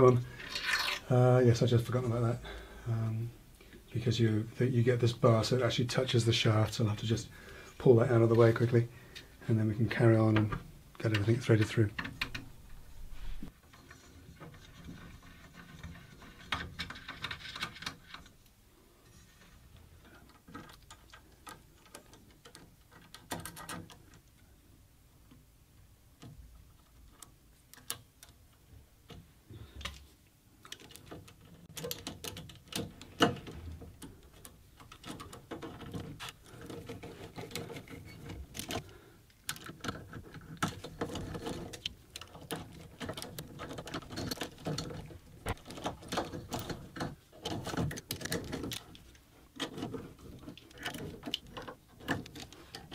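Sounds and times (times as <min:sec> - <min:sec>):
clicks and metal knocks: 0:13.6 - 0:18.4, 0:20.0 - 0:24.3, 0:26.2 - 0:52.9.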